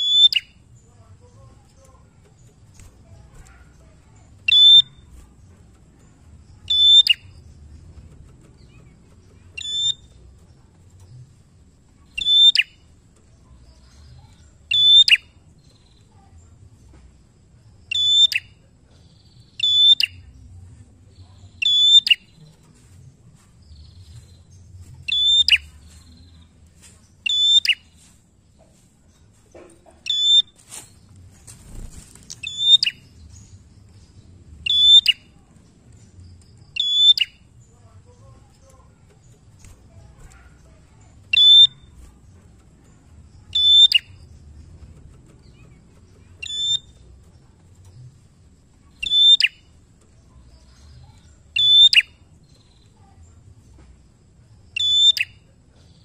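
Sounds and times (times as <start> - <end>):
bird giving sharp high calls: 4.5 - 5.0, 9.6 - 10.1, 41.3 - 41.9, 43.5 - 44.2, 46.4 - 47.0, 49.0 - 49.6.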